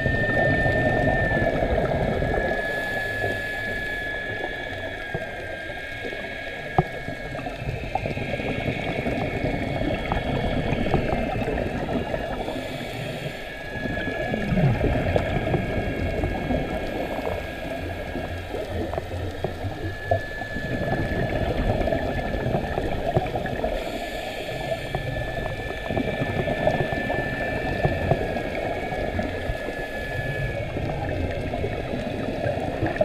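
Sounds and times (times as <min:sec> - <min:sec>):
steady high whine: 0:00.0 - 0:33.0
underwater bubbling exhaled air: 0:00.0 - 0:33.0.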